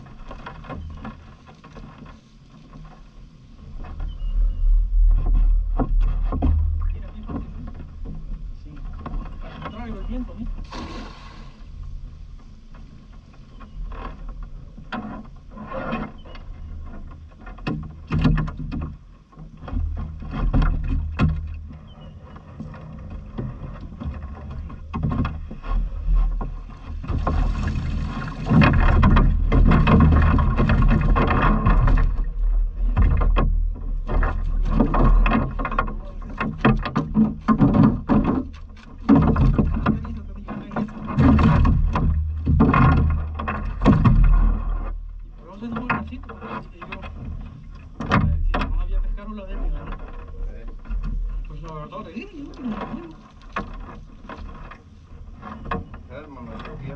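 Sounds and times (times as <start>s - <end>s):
wind rumble on microphone: 0.0s - 56.9s
water splashing and dripping: 23.4s - 47.1s.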